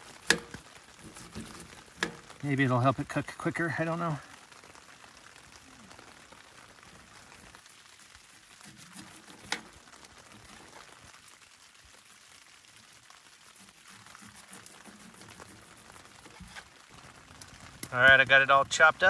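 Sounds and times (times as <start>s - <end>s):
steak sizzling in a pan: 0.0s - 2.7s, 4.0s - 18.8s
utensil tapping pan: 0.1s - 2.4s.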